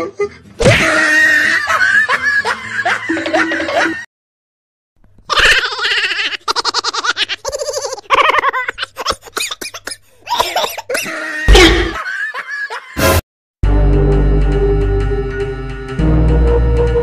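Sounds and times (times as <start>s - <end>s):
person giggling and cackling: 0.0s - 4.1s, 5.3s - 13.1s.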